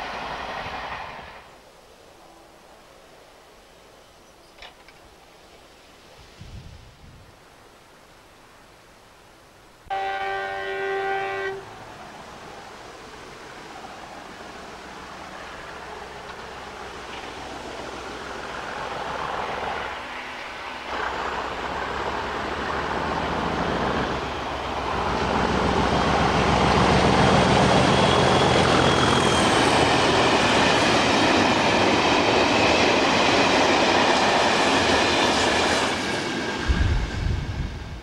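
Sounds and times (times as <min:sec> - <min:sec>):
diesel locomotive engine: 0:09.9 - 0:38.0.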